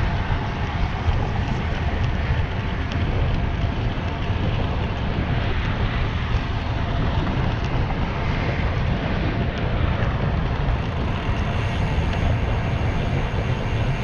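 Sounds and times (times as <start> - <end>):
bicycle tyres hissing on pavement: 0.0 - 14.0
wind rumble on microphone: 0.0 - 14.0.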